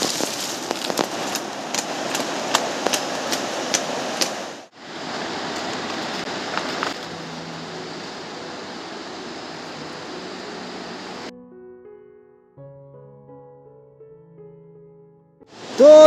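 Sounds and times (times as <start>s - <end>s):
sharp crackles and clicks: 0.0s - 4.4s, 5.5s - 7.4s
river water rushing: 0.0s - 11.3s, 15.5s - 16.0s.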